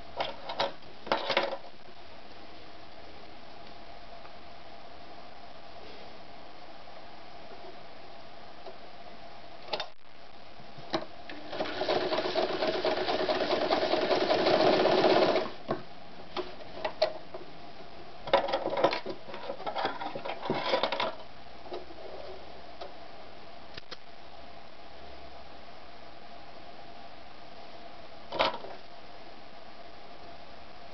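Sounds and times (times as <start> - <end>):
sewing machine stitching: 11.3 - 15.6.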